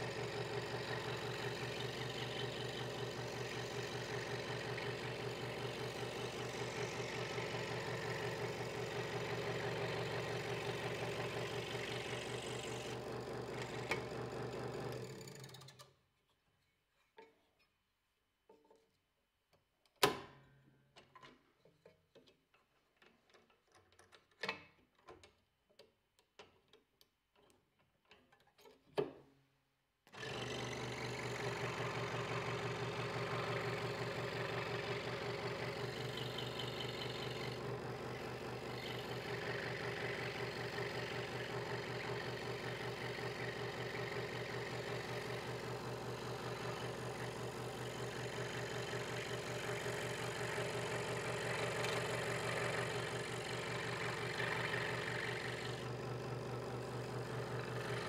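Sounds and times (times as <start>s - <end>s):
scroll saw humming: 0.2s - 14.4s, 30.1s - 58.0s.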